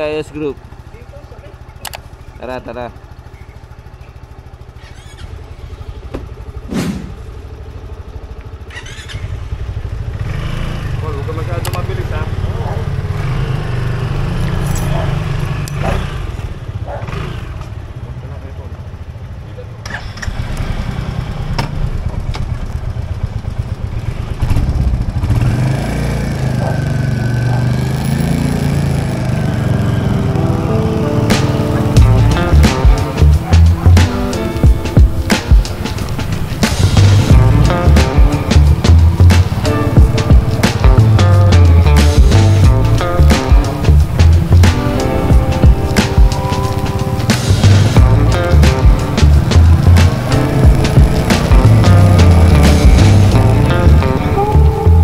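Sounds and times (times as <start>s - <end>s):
motorcycle engine idling: 0.0s - 55.0s
sharp click: 1.8s - 2.1s, 11.6s - 11.8s
thud: 6.7s - 7.2s.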